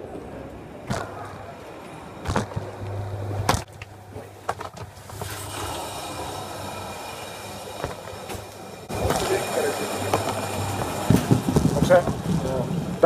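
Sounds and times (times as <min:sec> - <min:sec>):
conveyor belt humming: 0:00.0 - 0:13.0
knocks and clatters: 0:07.8 - 0:12.9.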